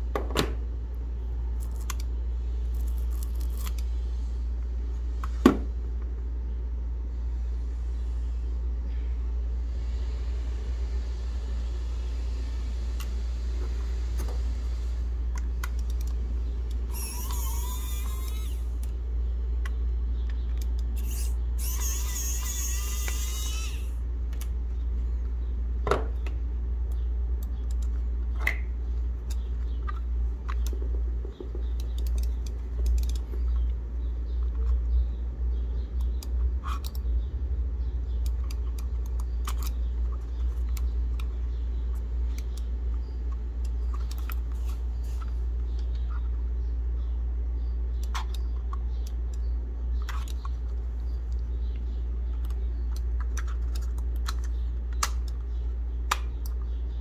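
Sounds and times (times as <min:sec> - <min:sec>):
squeaky rasping scrapes: 0:16.9 - 0:18.7, 0:21.0 - 0:23.9.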